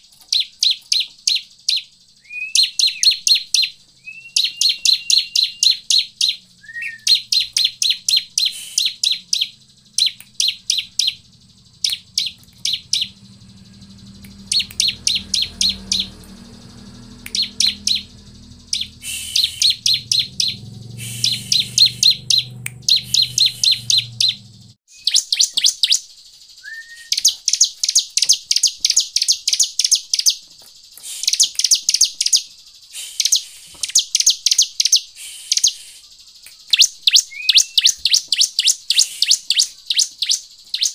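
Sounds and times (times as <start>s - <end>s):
bird chip notes and trills: 0.0s - 40.9s
low hum: 5.8s - 24.8s.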